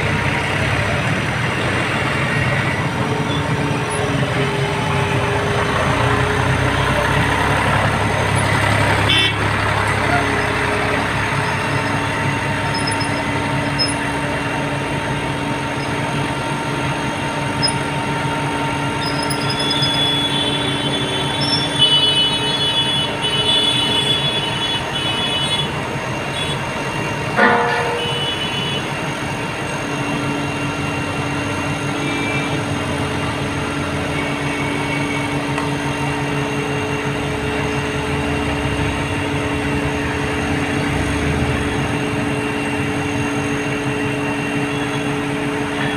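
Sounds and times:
heavy mechanical drone: 0:00.0 - 0:45.9
high squealing tones: 0:01.5 - 0:23.2
sharp metallic clank: 0:27.4 - 0:28.5.

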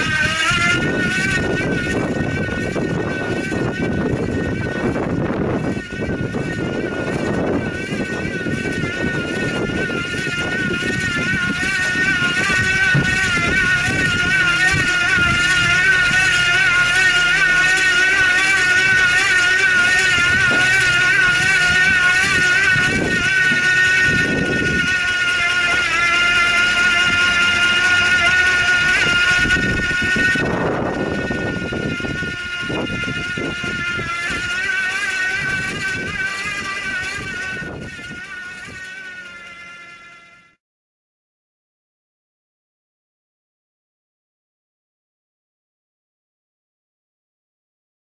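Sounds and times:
electric motor whining: 0:00.0 - 0:40.6.

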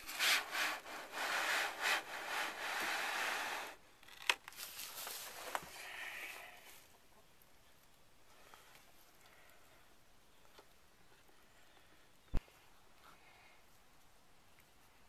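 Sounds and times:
hard objects scraping: 0:00.0 - 0:03.8.

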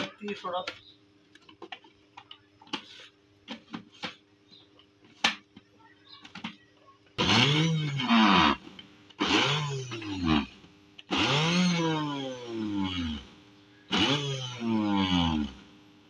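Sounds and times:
electric food chopper motor: 0:07.2 - 0:15.8.

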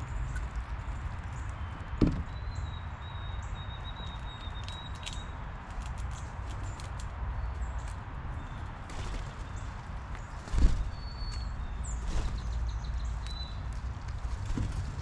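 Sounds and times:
knock: 0:02.0 - 0:02.3.

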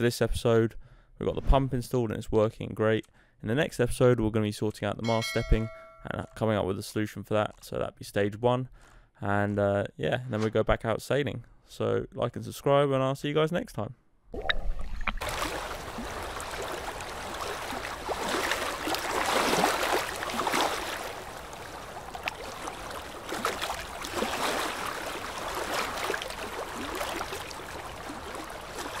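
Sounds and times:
small waves splashing: 0:14.4 - 0:29.0.

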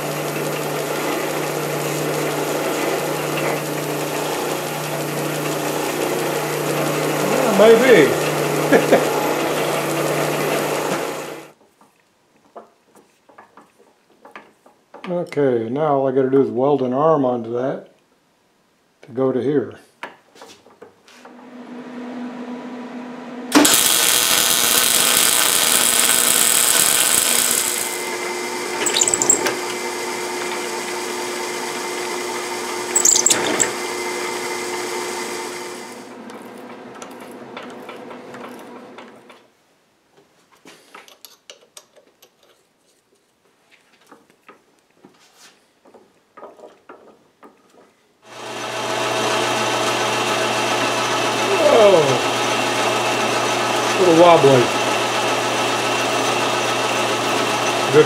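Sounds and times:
drill press drilling steel: 0:00.0 - 0:11.4, 0:23.5 - 0:29.8, 0:33.0 - 0:36.0, 0:48.3 - 0:58.0
metal lathe running: 0:00.0 - 0:11.4, 0:23.6 - 0:28.2, 0:28.8 - 0:29.5, 0:33.0 - 0:35.9.

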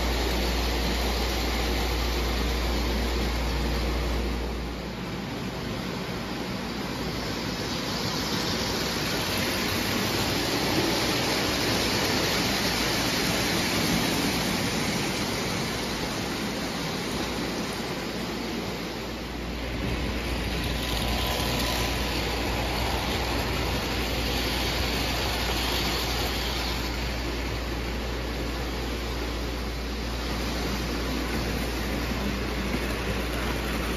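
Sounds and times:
model train wheels rumbling on rails: 0:00.0 - 0:33.9.

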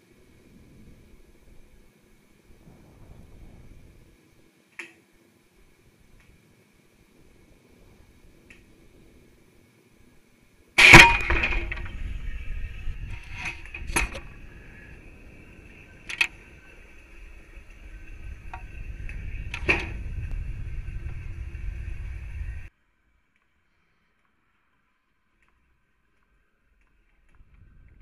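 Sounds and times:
low rumble: 0:00.2 - 0:04.4, 0:10.9 - 0:22.7
thin electronic whine: 0:05.3 - 0:28.0
loud bang: 0:10.8 - 0:14.4
rattles: 0:10.8 - 0:20.2.

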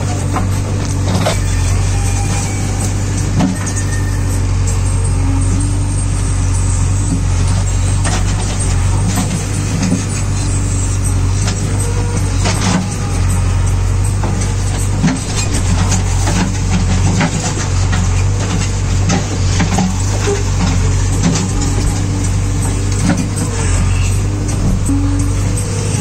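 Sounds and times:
diesel engine running under load: 0:00.0 - 0:26.0
digging gear knocks and clanks: 0:07.1 - 0:13.2.

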